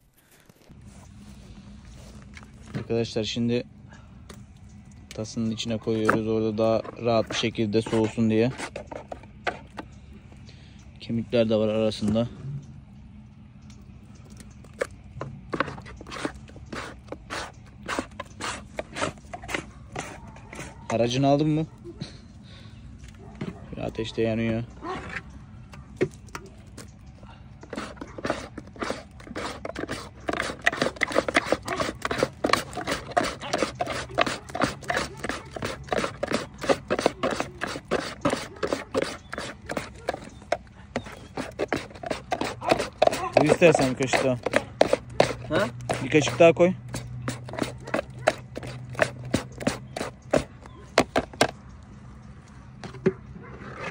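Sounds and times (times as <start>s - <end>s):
spoon scraping food from pot: 5.9s - 9.9s, 14.7s - 21.1s, 27.6s - 51.5s.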